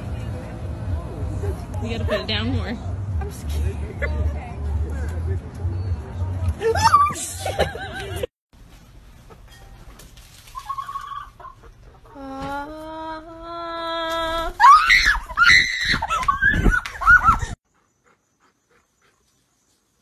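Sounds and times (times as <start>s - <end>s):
hen shrieks and squawks: 10.6s - 11.7s.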